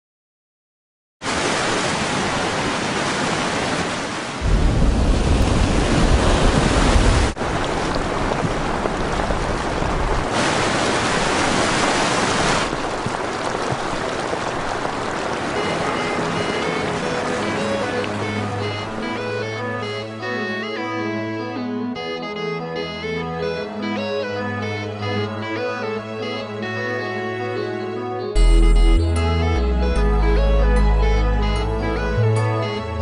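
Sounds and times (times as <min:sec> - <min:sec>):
floodwater rushing: 0:01.2 - 0:20.0
low water rumble: 0:04.4 - 0:19.1.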